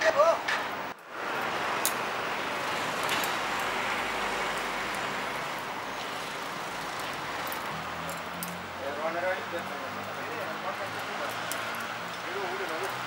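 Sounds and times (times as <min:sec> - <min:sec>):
road traffic hiss: 0:00.0 - 0:13.0
vehicle passing rumble: 0:01.1 - 0:13.0.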